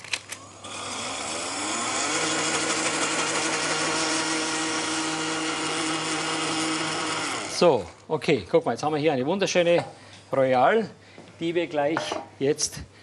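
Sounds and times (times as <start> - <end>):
blender motor running: 0.4 - 8.0.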